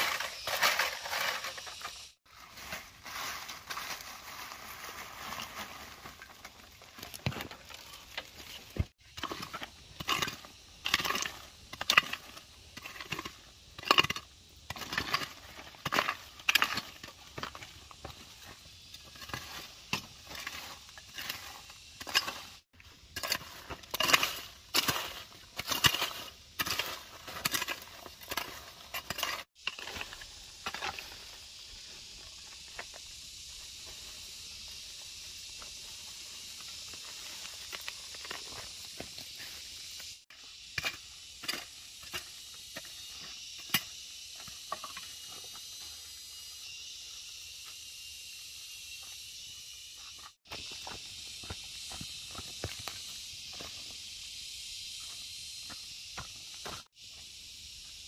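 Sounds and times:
garden tool scraping dry ground: 0.0 - 46.3.

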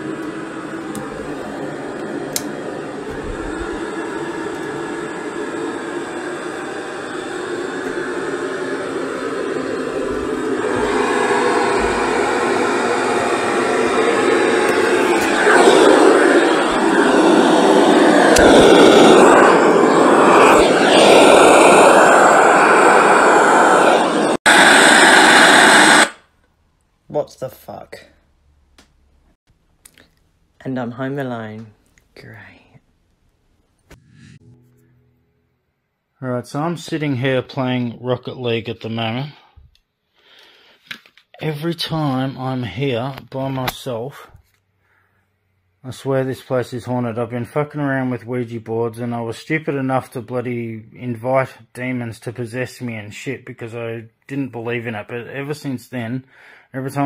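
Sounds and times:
steady droning hum: 0.0 - 25.9
loud radio static hiss: 0.0 - 26.2.

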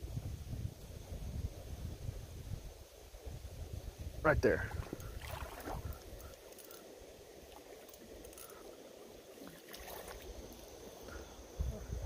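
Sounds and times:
creek running softly: 2.9 - 12.0.

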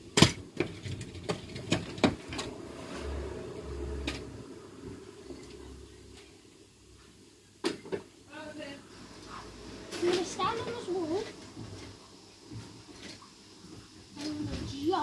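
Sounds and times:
low rolling rumble: 1.6 - 6.9.

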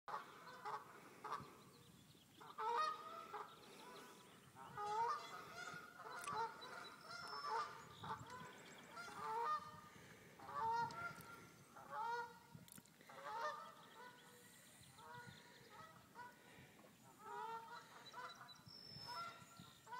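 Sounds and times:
geese honking: 2.5 - 12.4, 13.1 - 18.5.

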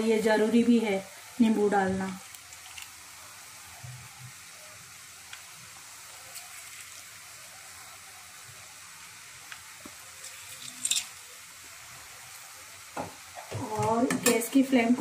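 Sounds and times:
vegetables sizzling in a pan: 0.0 - 15.0.

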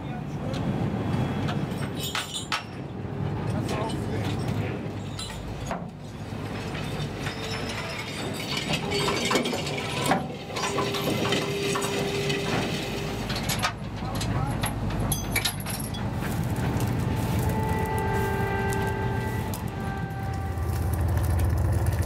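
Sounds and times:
winch clattering and ratcheting: 6.6 - 12.5
boat engine droning: 9.0 - 13.7, 15.8 - 22.0.

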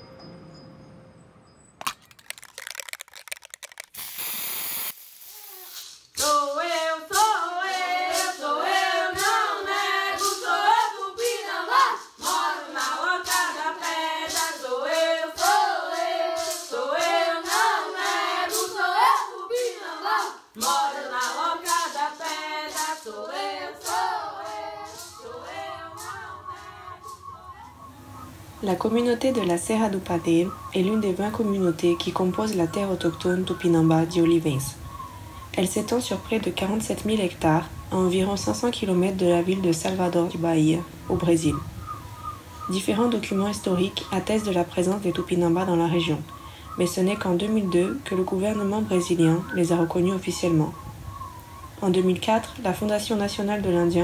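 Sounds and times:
scattered clicks: 1.8 - 4.6
burst of hiss: 3.9 - 6.5
voices singing together: 6.2 - 35.2
sharp percussive beat: 7.1 - 27.2.

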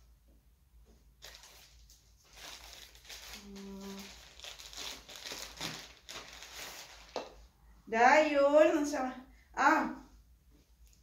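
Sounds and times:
plastic bag crinkling: 1.2 - 7.5.

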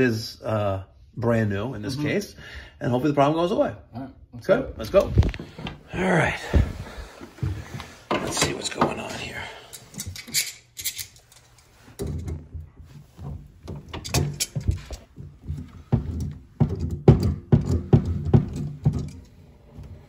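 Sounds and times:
hands thumping and knocking on plastic: 14.7 - 19.1.

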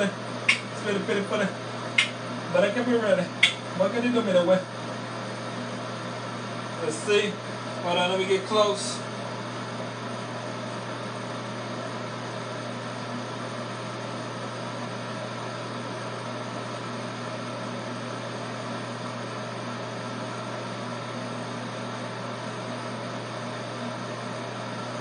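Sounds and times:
electric hair clippers buzzing: 0.0 - 0.9, 2.0 - 2.7.

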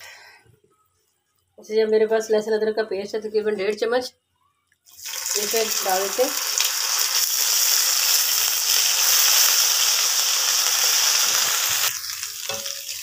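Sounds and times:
paste sizzling in hot oil: 4.9 - 13.0
spatula stirring: 11.9 - 13.0.

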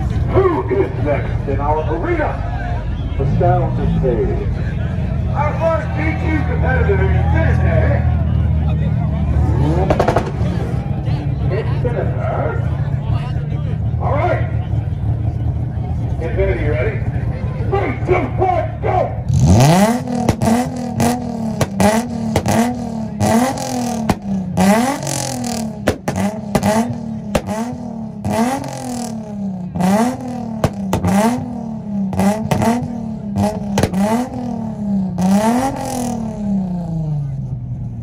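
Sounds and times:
car engine revving hard: 9.2 - 11.0, 19.2 - 37.3
exhaust pops and bangs: 9.8 - 10.8, 20.1 - 23.3, 23.9 - 24.6, 25.7 - 27.8, 30.5 - 31.5, 32.2 - 34.2.

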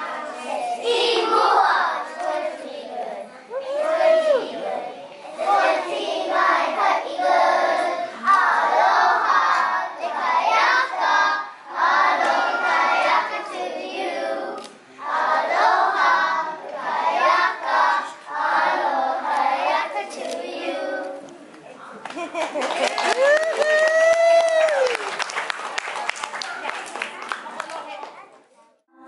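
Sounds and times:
children singing together: 0.0 - 21.3.

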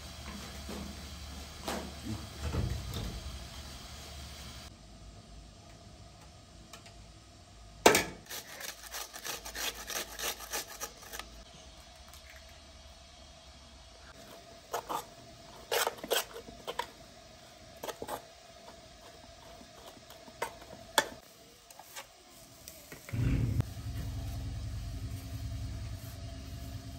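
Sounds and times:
potatoes grated on metal grater: 8.2 - 11.4, 14.3 - 16.9
utensil scraping steel bowl: 8.3 - 11.4, 14.3 - 16.9.

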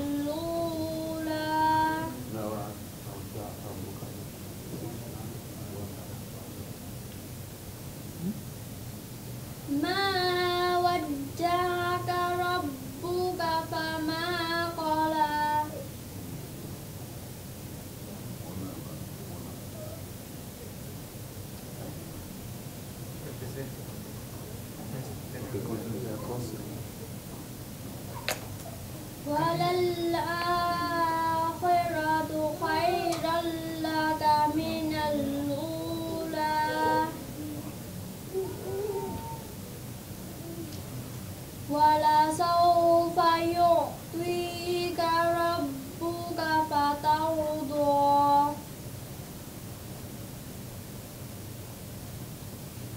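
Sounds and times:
girl singing unaccompanied: 0.0 - 2.3, 9.7 - 15.9, 29.2 - 39.6, 41.6 - 48.7.

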